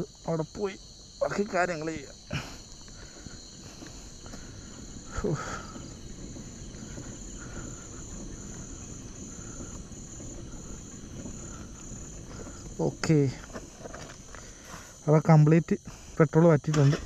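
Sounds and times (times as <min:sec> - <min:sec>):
crickets chirring: 0:00.0 - 0:17.0.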